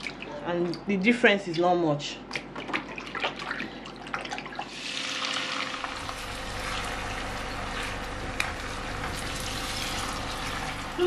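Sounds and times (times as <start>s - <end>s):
meat being handled wet: 0.0s - 4.7s
running tap water: 2.8s - 11.0s.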